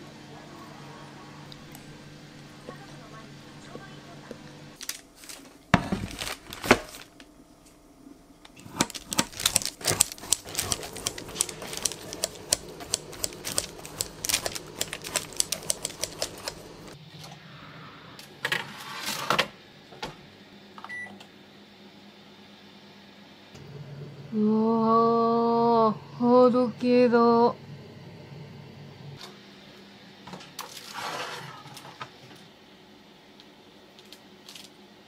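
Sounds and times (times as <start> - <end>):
scissors snipping dough: 8.7 - 16.7.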